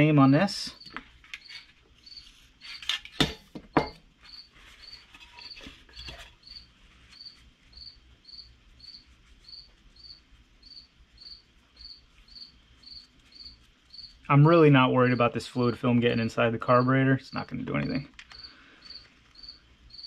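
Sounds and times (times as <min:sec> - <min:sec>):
cricket chirping: 0:00.2 - 0:02.9, 0:03.8 - 0:14.3, 0:17.8 - 0:20.0.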